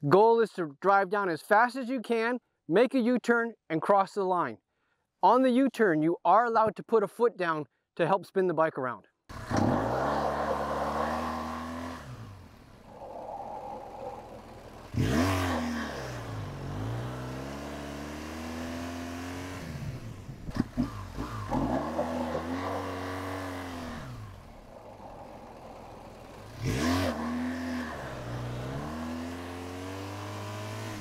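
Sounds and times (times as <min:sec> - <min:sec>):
motorcycle engine revving: 0:09.3 - 0:31.0.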